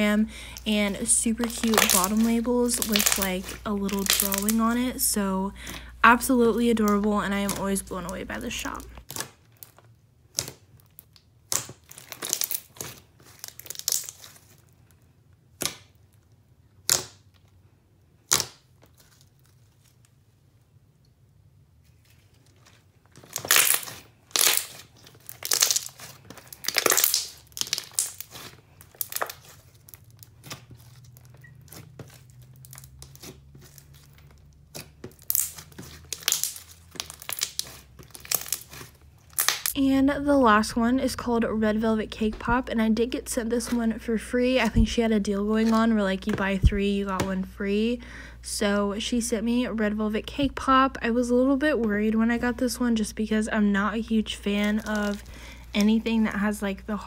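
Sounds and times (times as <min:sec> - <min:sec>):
slime bubble pops and crackles: 0:01.4 - 0:04.6, 0:23.4 - 0:29.4.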